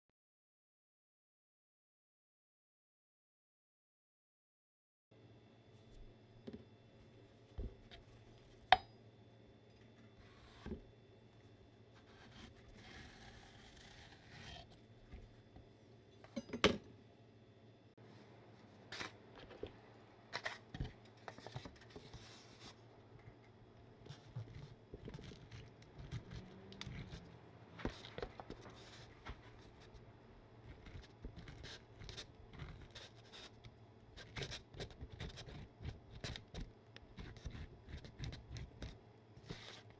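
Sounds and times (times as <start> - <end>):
knife cutting melon: 12.0 - 14.8.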